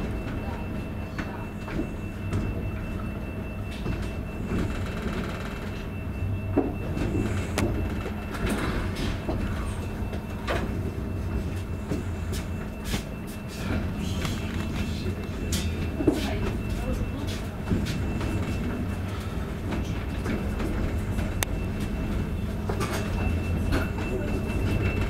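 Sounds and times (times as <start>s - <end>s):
train rumble and hum: 0.0s - 25.0s.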